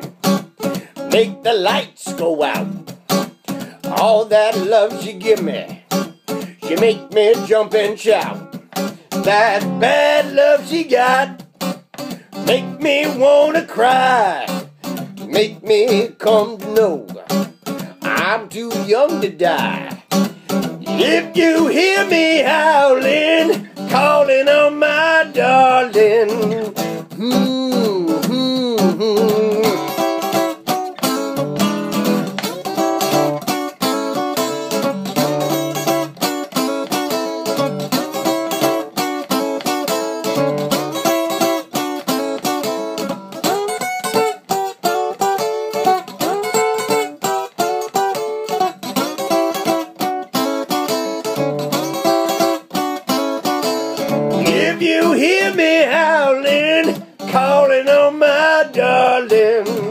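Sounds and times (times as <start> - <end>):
acoustic guitar blues playing: 0.0 - 59.9
man singing: 0.9 - 2.8, 3.6 - 11.4, 12.3 - 20.2, 20.8 - 30.5, 54.3 - 59.9.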